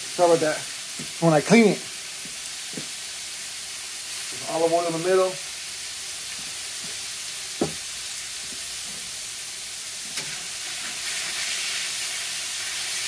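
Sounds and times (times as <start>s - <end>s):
meat sizzling on griddle: 0.0s - 13.0s
spatula tapping griddle: 7.6s - 7.8s.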